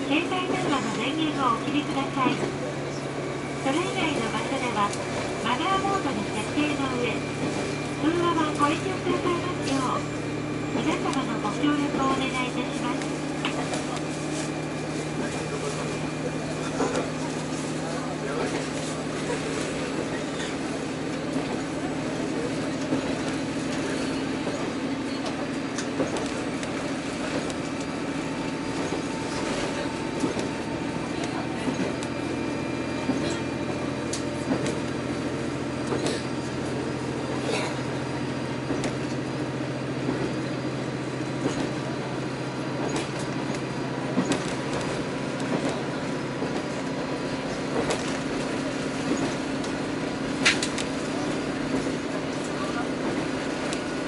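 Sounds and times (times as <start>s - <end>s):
railcar engine hum: 0.0s - 54.0s
wheels on rails: 0.0s - 54.0s
wheels clicking over rail joints: 42.5s - 54.0s.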